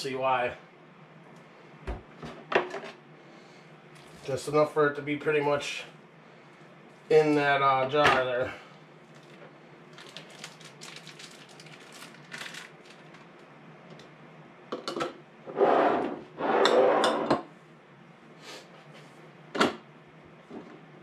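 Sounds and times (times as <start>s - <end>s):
scraping rustling noises: 15.5s - 17.3s.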